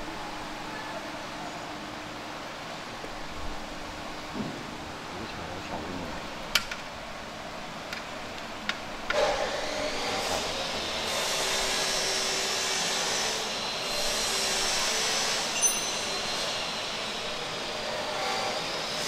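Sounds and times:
hissing machine noise: 0:07.1 - 0:19.0.

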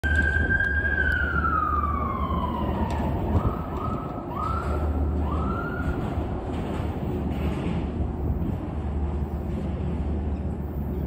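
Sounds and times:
emergency vehicle siren: 0:00.0 - 0:06.4
wind on microphone: 0:00.0 - 0:11.0.

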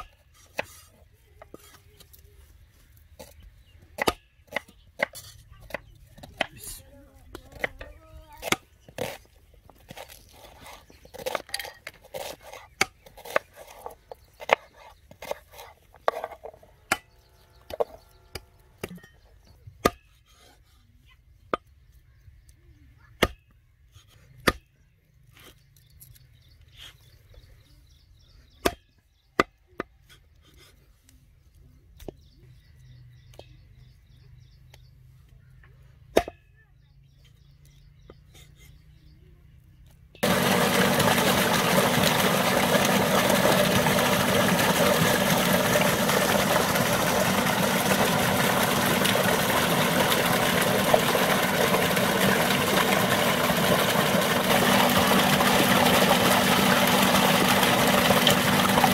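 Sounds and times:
cleaver chopping meat and bone: 0:04.0 - 0:06.8, 0:07.4 - 0:16.3, 0:19.8 - 0:20.2, 0:23.2 - 0:23.5, 0:24.4 - 0:24.7, 0:28.6 - 0:30.0.

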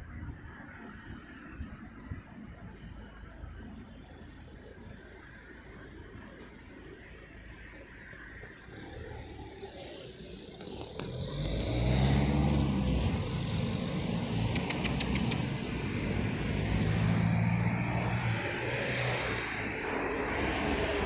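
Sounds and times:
vehicle engine passing: 0:10.4 - 0:21.0
sharp high ticks: 0:14.5 - 0:15.5.

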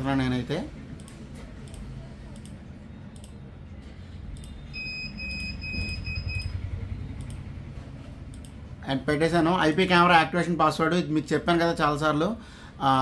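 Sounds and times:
computer mouse clicking: 0:01.0 - 0:03.4, 0:07.2 - 0:07.5, 0:08.3 - 0:08.6
short high electronic beeps: 0:04.4 - 0:07.3.

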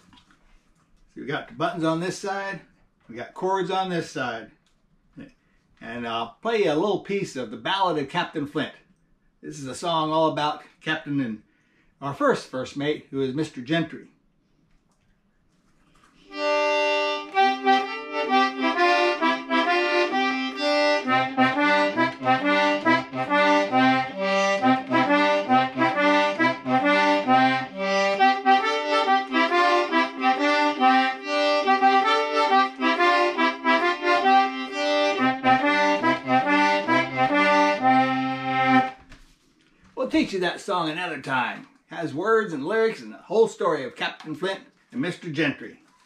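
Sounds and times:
button accordion playing: 0:16.3 - 0:39.0.

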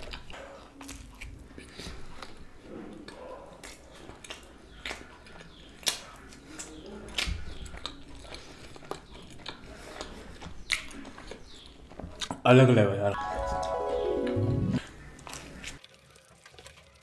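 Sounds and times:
person chewing food: 0:00.0 - 0:12.4, 0:14.8 - 0:16.5
wet mouth clicks and smacks: 0:03.6 - 0:11.4.

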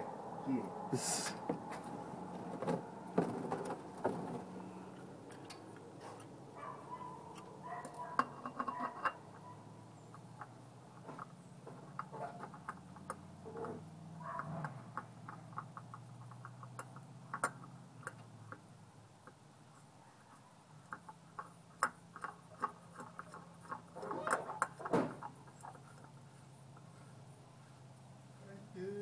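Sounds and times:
oil filter clicking and scraping: 0:07.2 - 0:27.3.

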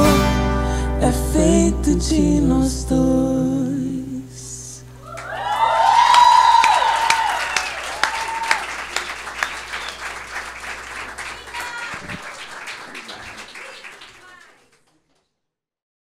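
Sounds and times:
voices cheering: 0:05.0 - 0:14.6
audience applauding: 0:05.0 - 0:15.3.

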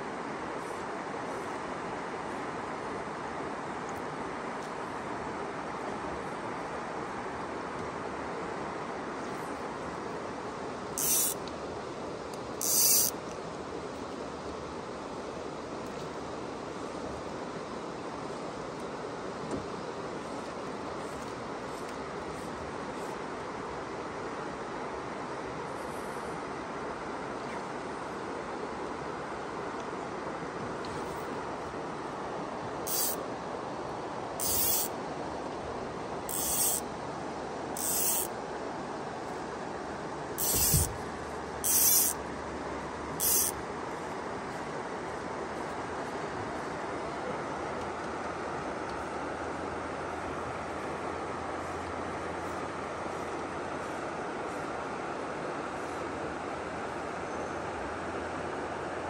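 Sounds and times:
fishing reel buzzing: 0:11.0 - 0:11.4, 0:12.6 - 0:13.2, 0:32.9 - 0:33.2, 0:34.4 - 0:35.0, 0:36.3 - 0:36.9, 0:37.8 - 0:38.3, 0:40.4 - 0:41.0, 0:41.6 - 0:42.2, 0:43.2 - 0:43.6
river water rushing: 0:26.3 - 0:59.0.

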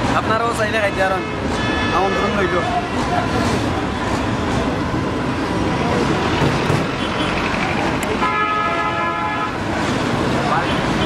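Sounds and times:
street traffic noise: 0:00.0 - 0:11.0
vehicle horn blast: 0:08.2 - 0:09.6.

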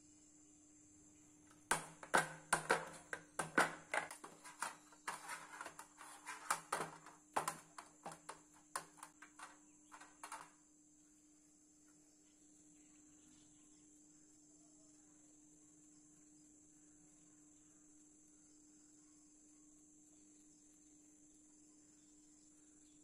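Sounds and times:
faint steady hum: 0:00.0 - 0:23.0
hands slapping dough on metal: 0:01.7 - 0:10.5.

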